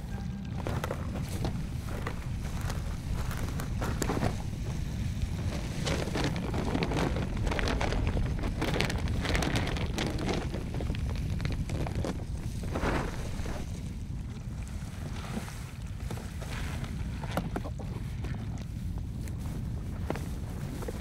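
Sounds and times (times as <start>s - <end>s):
rustling through grass: 0.0s - 14.0s
wind rumbling on microphone: 0.0s - 21.0s.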